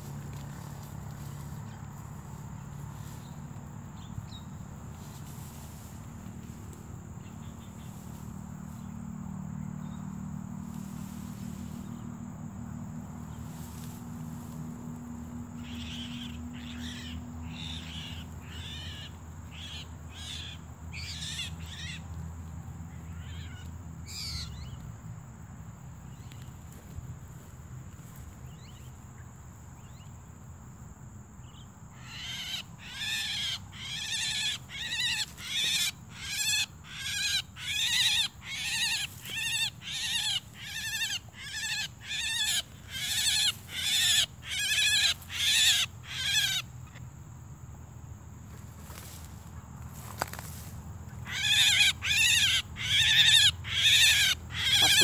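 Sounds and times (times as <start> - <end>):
myna bird calling: 15.6 - 22.2, 22.9 - 24.8, 31.4 - 47.0, 50.0 - 55.0.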